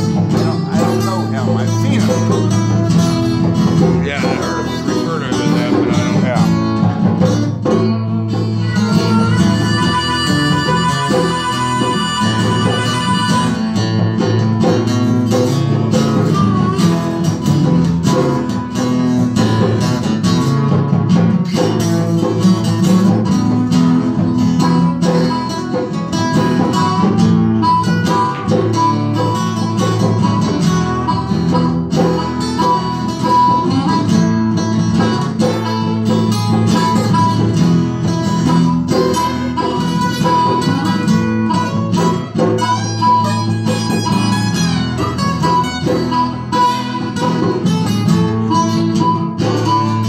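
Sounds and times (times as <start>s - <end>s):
harmonica playing: 0.0s - 7.1s, 8.1s - 14.6s, 26.4s - 50.0s
acoustic guitars strumming: 0.0s - 50.0s.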